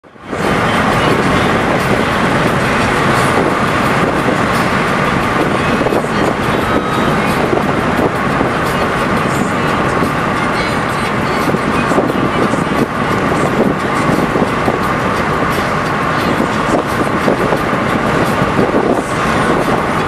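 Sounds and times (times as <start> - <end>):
road and wind noise in car: 0.0 - 20.0.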